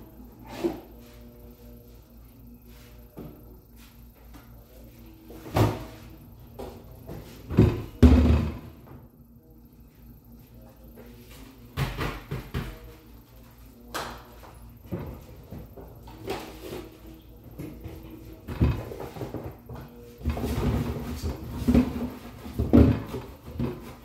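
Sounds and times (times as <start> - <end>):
faint steady hum: 0.0 - 24.0
knocks and thumps of objects: 7.5 - 8.8, 11.8 - 12.8.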